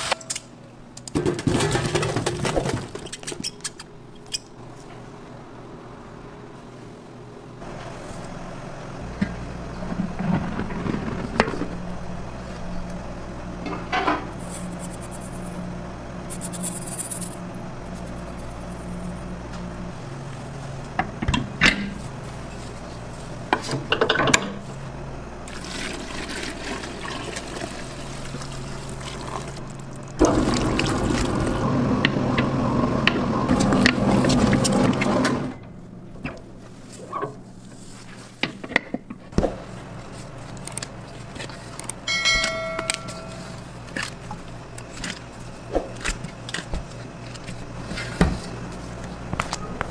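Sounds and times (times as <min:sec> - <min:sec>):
knocks and clinks in bowl: 0:42.1 - 0:43.6.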